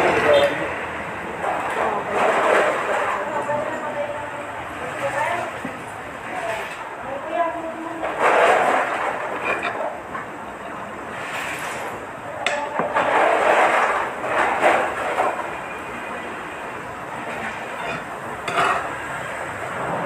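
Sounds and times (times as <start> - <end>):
steady background noise: 0.0 - 20.0
glass and tableware clinking: 17.3 - 19.0.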